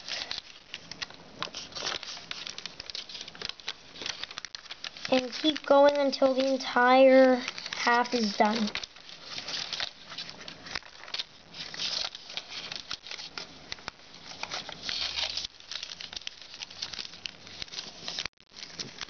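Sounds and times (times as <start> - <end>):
foil paper crinkling: 0.0 - 19.0
small crackles of folds: 0.0 - 19.0.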